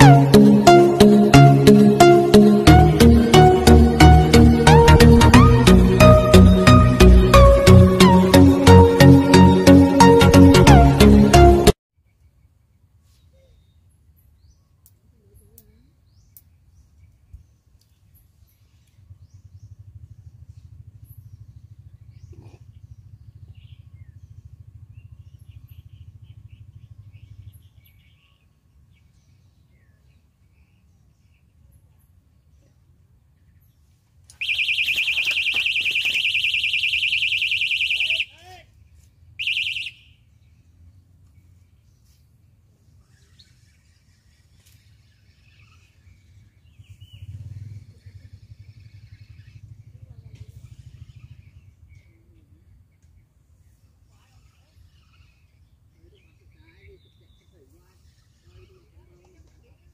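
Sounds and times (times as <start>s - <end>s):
low fluttering rumble: 18.6s - 27.9s
high bird chirps: 34.3s - 38.4s, 39.4s - 40.6s.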